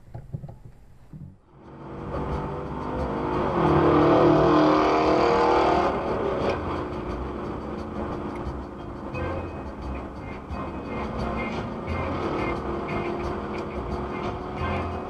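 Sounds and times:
road and wind noise: 0.0 - 15.0
car engine accelerating: 1.3 - 15.0.

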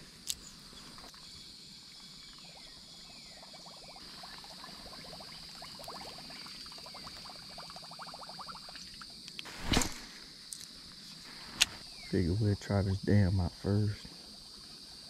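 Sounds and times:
high-pitched insect drone: 10.1 - 15.0.

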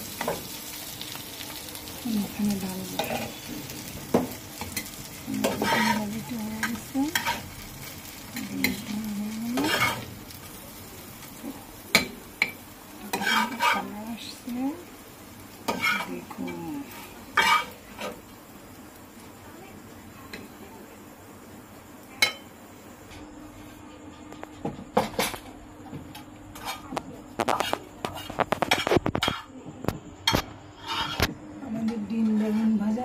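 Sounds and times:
oil sizzling: 0.0 - 23.8, 24.6 - 29.5
metal spatula scraping pan: 4.8 - 7.5, 9.5 - 10.1, 13.0 - 14.0, 15.7 - 16.3, 17.0 - 18.2, 26.6 - 29.5, 30.8 - 31.3, 32.2 - 32.9.

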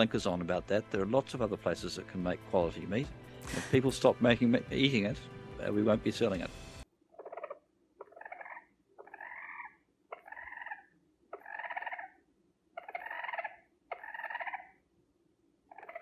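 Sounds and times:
short clicking animal calls: 7.2 - 12.2, 12.8 - 14.7, 15.7 - 16.0.

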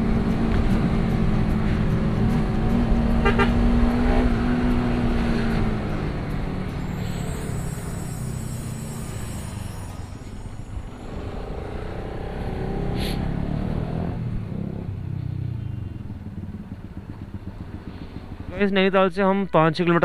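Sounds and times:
motorcycle engine running: 0.0 - 8.8, 10.9 - 18.6
short horn toot: 3.2 - 3.6.

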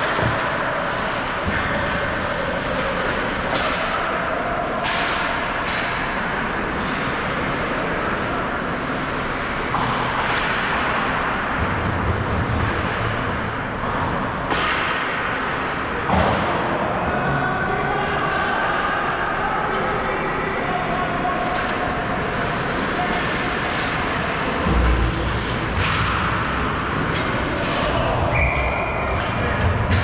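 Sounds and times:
hockey sticks and puck knocking: 2.8 - 4.1, 14.0 - 16.6.

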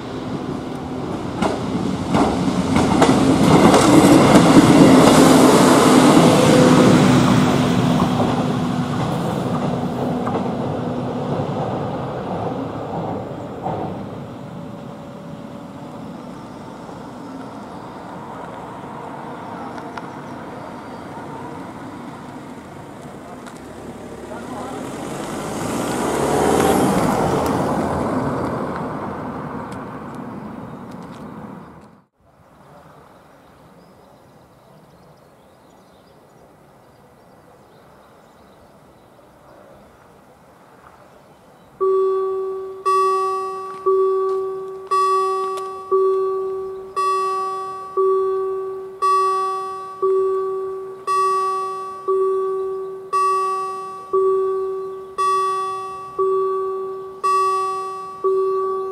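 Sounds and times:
car driving past: 1.4 - 30.5
crossing warning bell: 3.0 - 11.4, 41.8 - 58.9.

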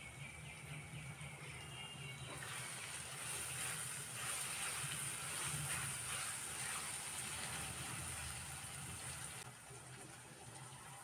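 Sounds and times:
spatula stirring in wok: 2.3 - 9.4
vegetables sizzling in hot oil: 2.4 - 9.4.

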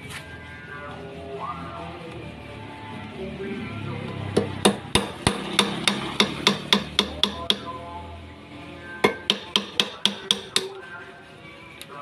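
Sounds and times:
hammer tapping steel rod: 4.4 - 7.7, 9.0 - 10.8.

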